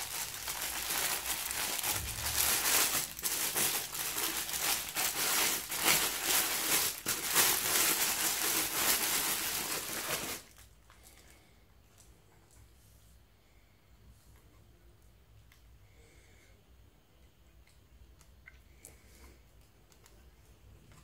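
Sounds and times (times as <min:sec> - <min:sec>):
plastic bag crinkling: 0:00.0 - 0:11.4.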